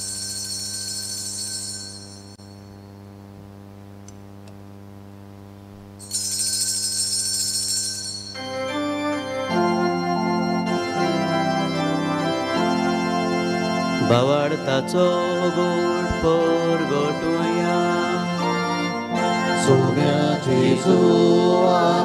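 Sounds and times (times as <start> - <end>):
altar bells ringing: 0.0 - 3.0, 6.0 - 20.2
church organ chords: 8.3 - 22.0.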